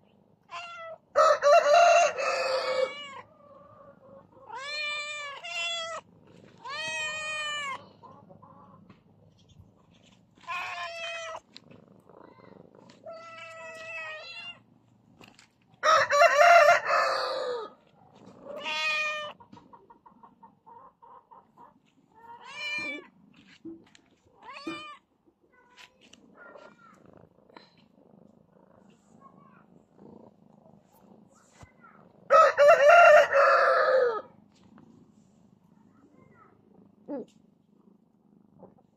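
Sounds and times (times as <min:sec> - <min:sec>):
cats meowing: 0:00.4 - 0:01.1, 0:02.2 - 0:08.9, 0:10.0 - 0:14.7, 0:18.2 - 0:19.6, 0:22.1 - 0:23.2, 0:24.1 - 0:25.1.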